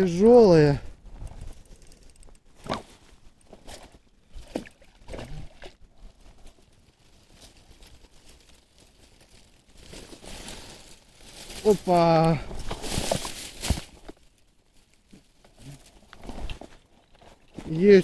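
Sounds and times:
small water splashes: 3.7 - 5.9
dry reeds crackling and rustling: 6.0 - 18.0.

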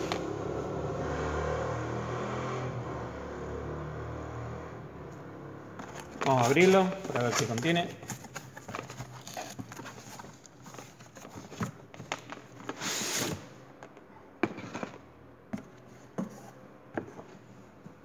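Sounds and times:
cardboard rustling and scraping: 5.8 - 13.5, 14.5 - 18.0.

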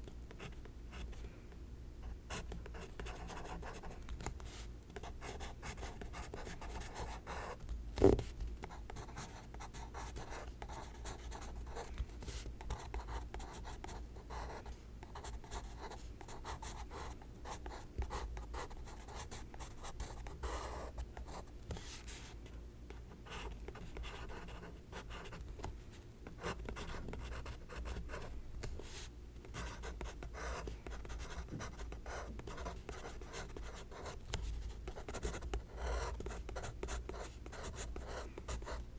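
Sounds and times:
pencil scratching on paper: 34.9 - 38.8.

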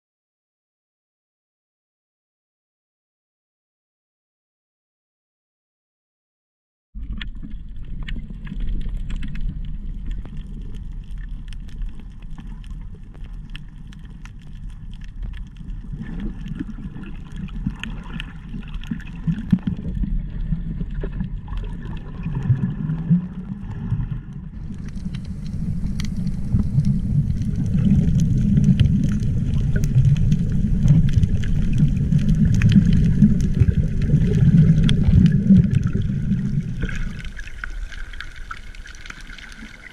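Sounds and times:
crackling clicks underwater: 7.0 - 39.9
muffled underwater rumble: 7.0 - 39.9.

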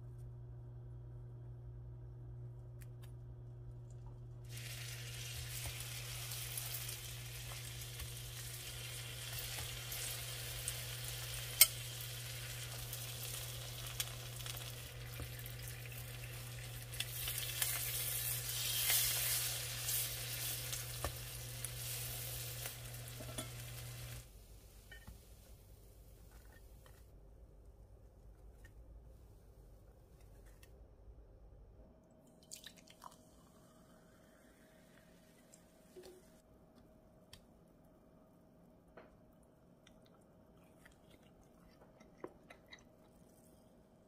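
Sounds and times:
steady low hum: 0.0 - 18.8
bread frying in butter sizzling: 4.4 - 24.4.

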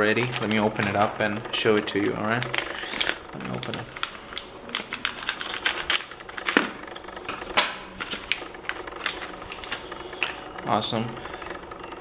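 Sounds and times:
plastic crinkling: 0.0 - 1.3, 2.2 - 10.5
scissors snipping plastic bag: 2.4 - 10.4.

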